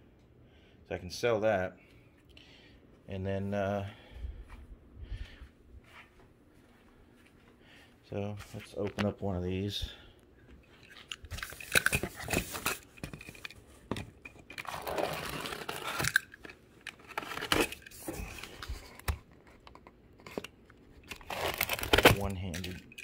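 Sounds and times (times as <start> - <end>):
cardboard flaps crinkling and scraping: 14.6 - 16.1, 21.2 - 22.6
box cutter slitting packing tape: 14.6 - 16.4, 17.0 - 18.2, 21.1 - 22.3.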